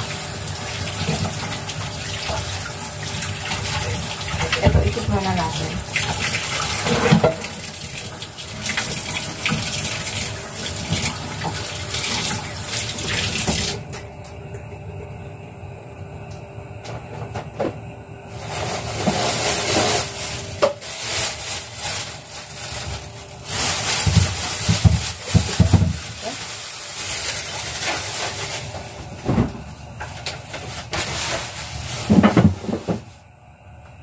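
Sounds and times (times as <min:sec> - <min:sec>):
plastic bag handled: 0:18.3 - 0:33.2.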